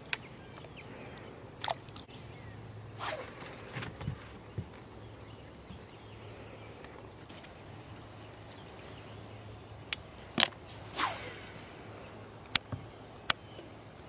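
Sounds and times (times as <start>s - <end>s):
fishing rod cast swish: 10.7s - 11.8s.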